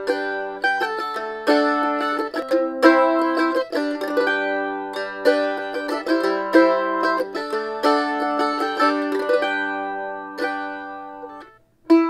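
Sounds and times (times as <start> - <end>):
mandolin playing: 0.0 - 12.0.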